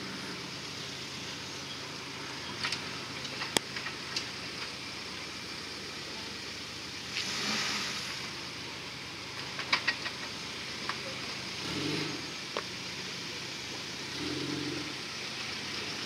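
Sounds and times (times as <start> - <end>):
engine running at low crawl: 0.0 - 16.0
sharp clicks and knocks: 2.6 - 4.7, 9.4 - 11.1.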